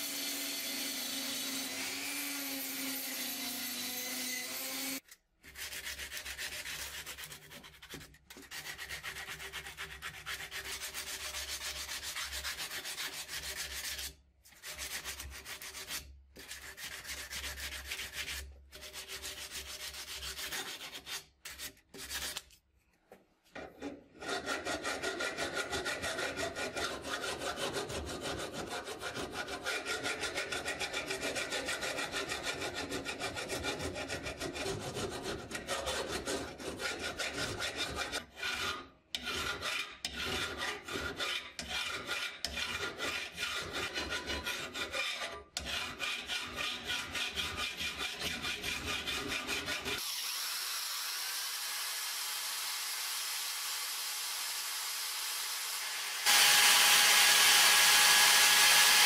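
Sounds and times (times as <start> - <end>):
hand file rasping on steel: 0.0 - 22.5, 23.8 - 50.1
sanding block rubbing on steel: 2.9 - 22.5, 24.2 - 50.1.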